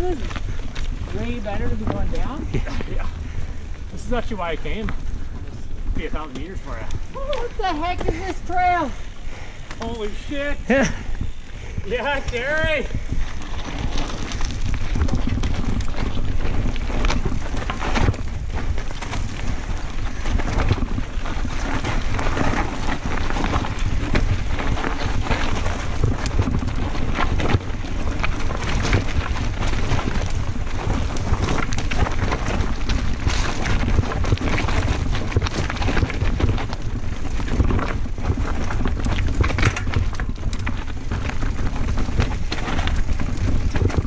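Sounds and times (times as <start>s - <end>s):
bike knocking and rattling: 0.0s - 44.0s
bike tyres crunching over rock: 0.0s - 44.0s
wind buffeting microphone: 0.0s - 44.0s.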